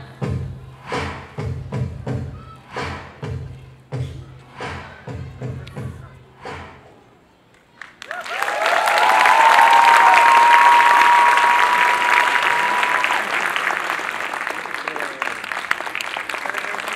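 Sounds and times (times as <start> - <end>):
audience applauding: 7.7 - 16.9
high-pitched cheers: 8.0 - 15.1.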